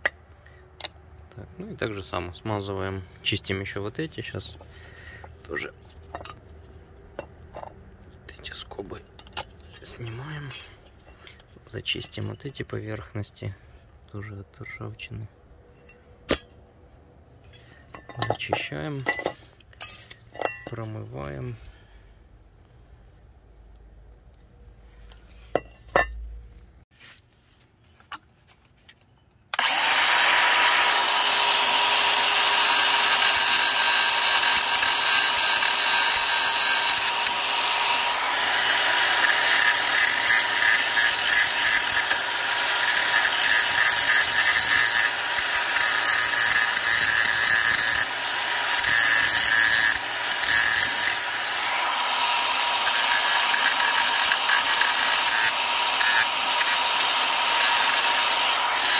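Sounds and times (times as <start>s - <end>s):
angle grinder grinding metal: 7.2s - 13.1s, 25.5s - 26.4s, 29.6s - 58.9s.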